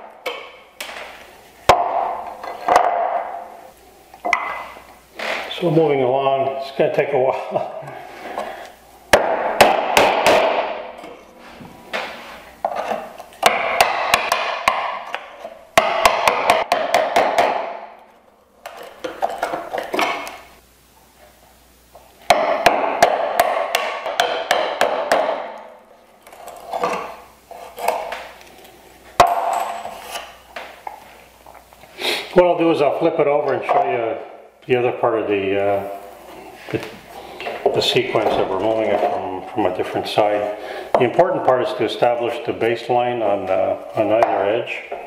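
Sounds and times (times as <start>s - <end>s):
mallet striking chisel: 15.8s - 17.9s.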